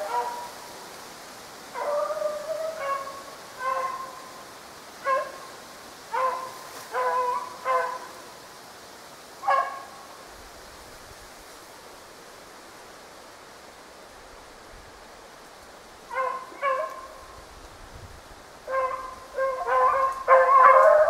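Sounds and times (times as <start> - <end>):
dog barks: 0.0 - 0.5, 1.8 - 4.2, 5.0 - 5.4, 6.1 - 8.1, 9.4 - 10.0, 16.1 - 17.2, 18.7 - 21.0
dogs baying: 18.7 - 21.0.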